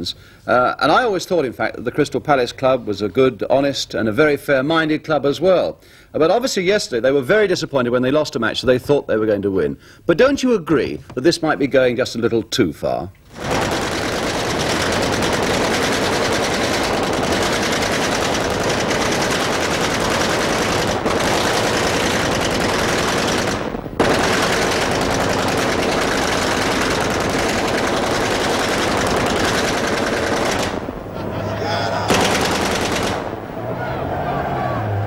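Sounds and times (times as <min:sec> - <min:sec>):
rapid machine-gun fire: 0:13.3 - 0:31.1, 0:32.1 - 0:33.5.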